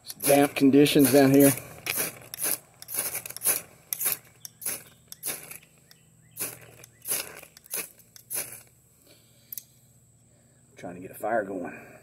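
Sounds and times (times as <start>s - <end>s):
knife scraping ferrocerium rod: 0.0s - 8.6s.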